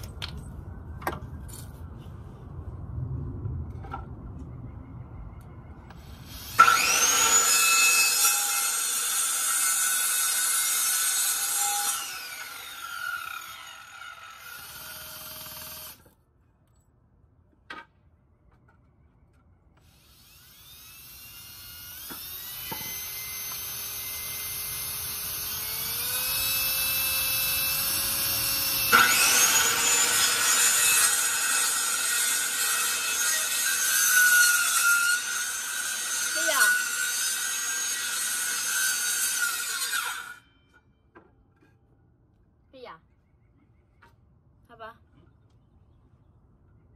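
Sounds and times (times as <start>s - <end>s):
electric saw cutting wood: 6.1s - 16.0s, 19.9s - 40.4s.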